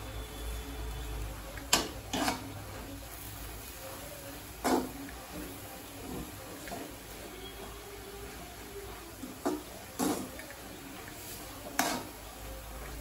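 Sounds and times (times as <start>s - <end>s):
ladle scraping a metal pan: 1.8s - 2.6s.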